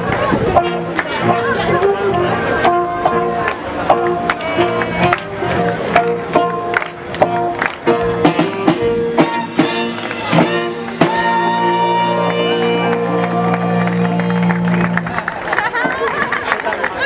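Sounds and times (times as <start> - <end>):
swing jazz band playing: 0.0 - 15.5
drum kit beat: 2.6 - 14.6.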